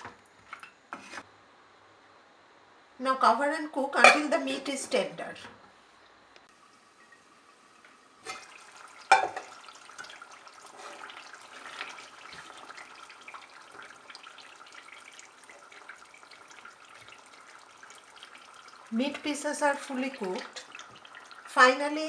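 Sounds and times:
curry bubbling and sizzling: 6.5 - 22.0
metal pot lid clanking: 9.1 - 9.6.

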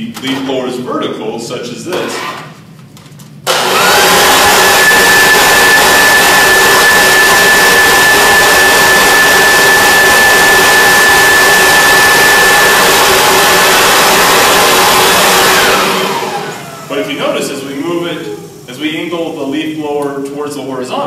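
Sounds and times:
leaf blower running: 3.5 - 19.4.

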